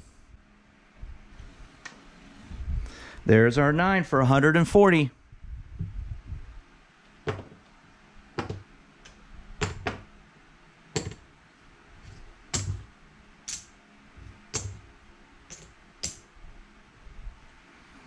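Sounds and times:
casino chips clicking together: 15.5s - 16.2s.

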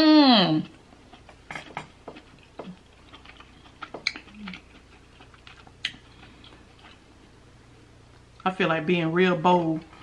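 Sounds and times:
wet chewing clicks and smacks: 0.9s - 7.0s.

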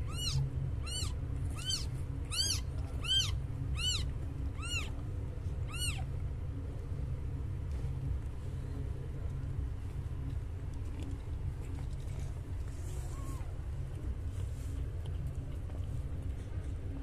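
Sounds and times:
kitten mewing: 0.1s - 5.0s, 5.7s - 6.1s.

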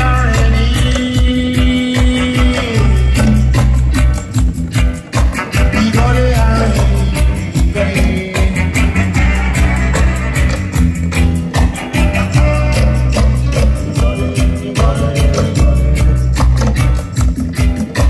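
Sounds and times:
person singing: 0.0s - 4.0s, 5.4s - 10.1s, 11.9s - 17.1s
drum beat: 0.0s - 18.0s
loud music with heavy bass: 0.0s - 18.0s.

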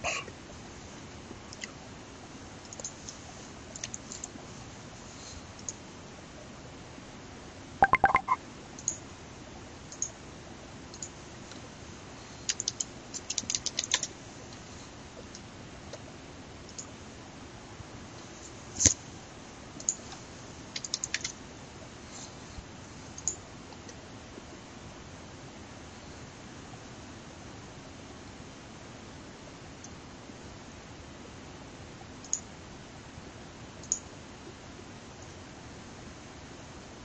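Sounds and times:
keyboard typing: 7.8s - 8.4s.

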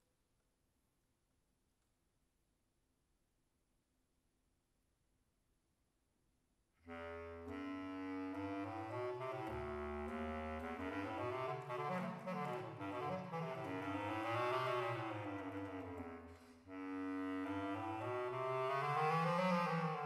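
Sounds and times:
solo bass clarinet: 6.8s - 20.0s.

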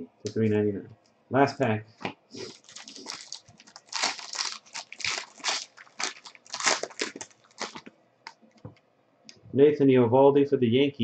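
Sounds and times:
foil wrapper crinkling and tearing: 2.4s - 7.9s.

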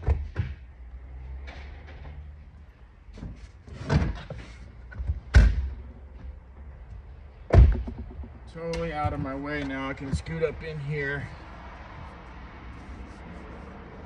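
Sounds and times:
knocks and thuds of truck seat: 7.5s - 10.6s.

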